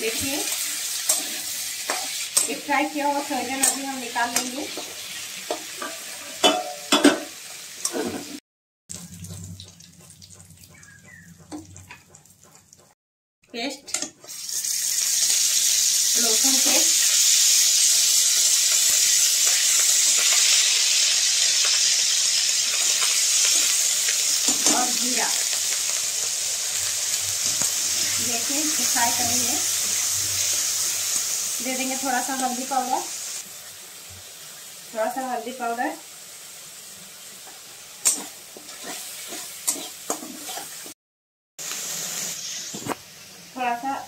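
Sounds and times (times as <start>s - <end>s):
garlic paste sizzling in oil: 0.0s - 12.9s, 14.0s - 41.0s, 41.6s - 44.0s
metal spatula scraping: 0.5s - 2.6s, 37.4s - 41.0s.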